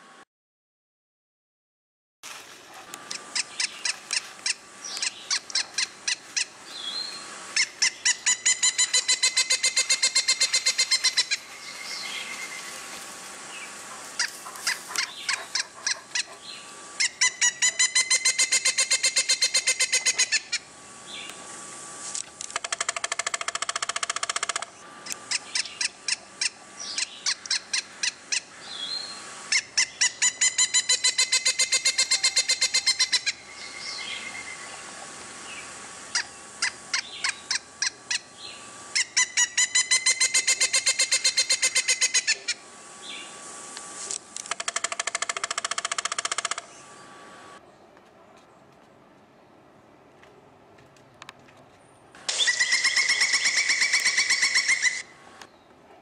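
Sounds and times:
woodpecker ringing calls: 3.1s - 12.7s, 14.2s - 21.3s, 22.5s - 34.8s, 36.1s - 43.2s, 44.4s - 46.8s, 52.3s - 55.1s.

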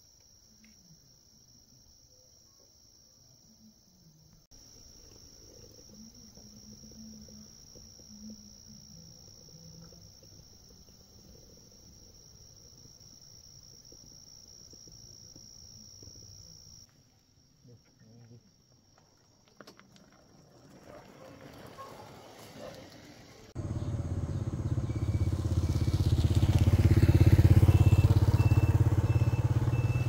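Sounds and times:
crickets trilling: 0.0s - 30.0s.

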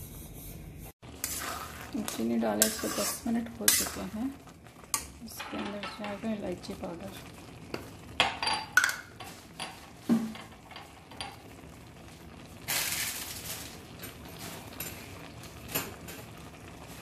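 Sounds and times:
thick mixture bubbling and popping: 1.0s - 12.7s.

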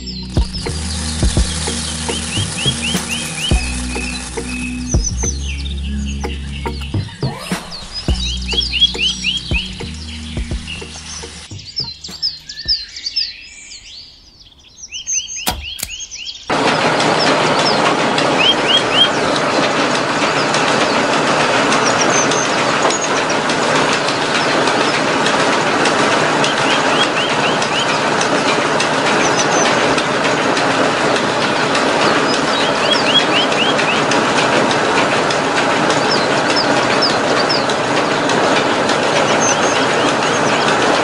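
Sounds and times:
sharp clicks: 0.0s - 5.4s, 15.4s - 23.2s
motor and mill whirring: 0.0s - 12.7s
birds chirping: 0.0s - 41.0s.

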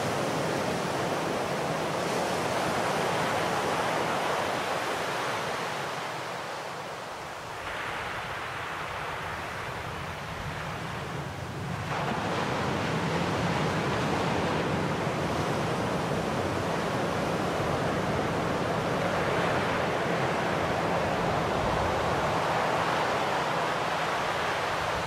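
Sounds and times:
waves washing over rocks: 11.2s - 25.0s.

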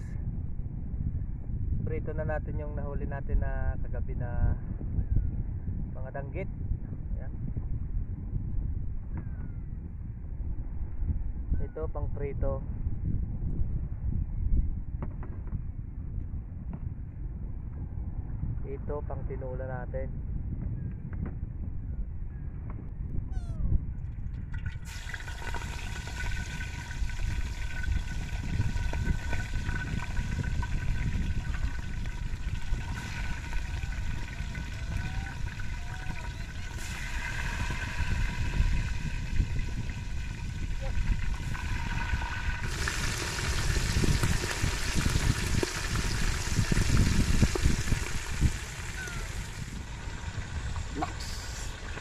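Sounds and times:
wind rumble on microphone: 0.0s - 52.0s
oil sizzling with frying fish: 24.7s - 52.0s.

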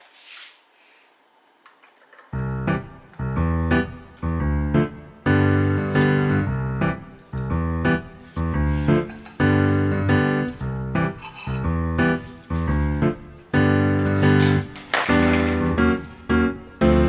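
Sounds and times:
keyboard chords: 2.3s - 17.0s.

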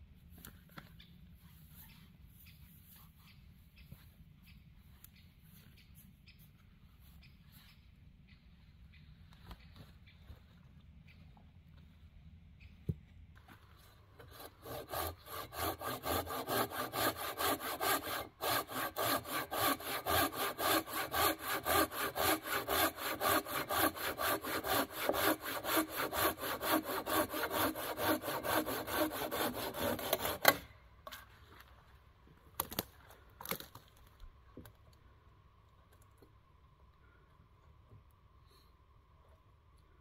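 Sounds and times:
hand saw cutting log: 14.2s - 30.7s
wood cracking: 32.6s - 34.8s.

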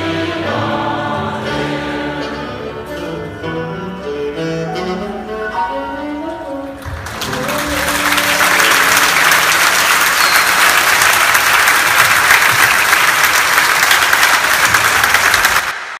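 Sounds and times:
crowd applauding: 6.8s - 16.0s.

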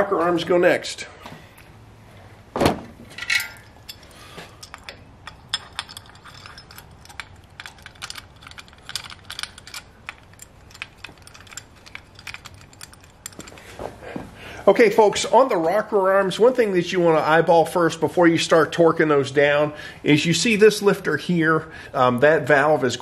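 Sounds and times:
metal rocker arms clicking: 3.1s - 13.8s.

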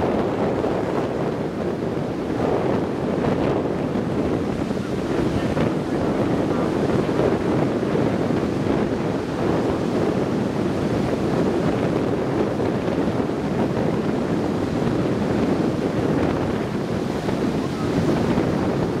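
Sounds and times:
heavy surf breaking: 0.0s - 19.0s
wind buffeting microphone: 0.0s - 19.0s.

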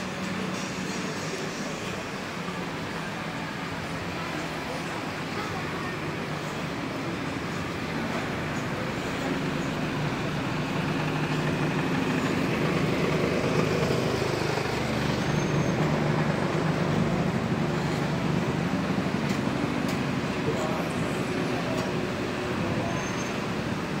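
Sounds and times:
slow car traffic passing: 0.0s - 24.0s.

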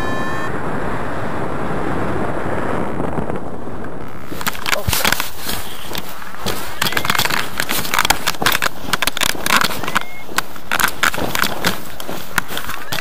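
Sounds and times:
clothing rustling against microphone: 4.1s - 13.0s.

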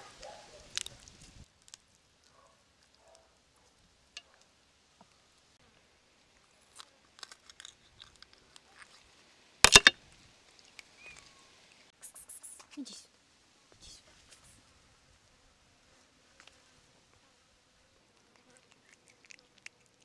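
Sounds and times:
soft wet clicks and tearing: 0.7s - 3.4s
loud crunch of quick snaps: 6.7s - 9.0s.

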